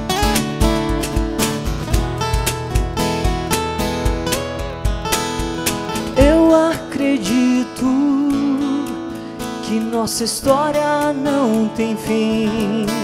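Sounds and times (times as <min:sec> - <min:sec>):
low thumps: 0:00.0 - 0:06.6
acoustic guitar strumming: 0:00.0 - 0:13.0
person singing: 0:06.2 - 0:13.0.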